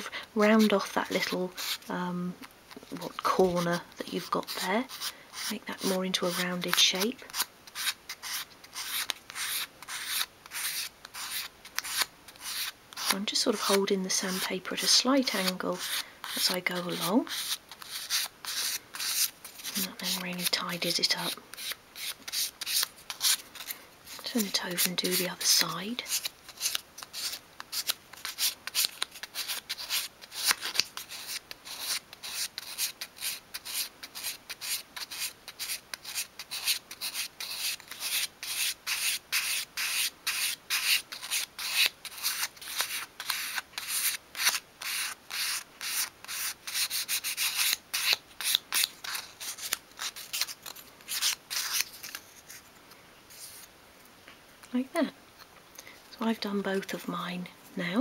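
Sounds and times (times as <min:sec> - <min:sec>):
sandpaper rubbing wood: 0:07.4 - 0:14.5, 0:15.4 - 0:20.4, 0:21.6 - 0:50.5.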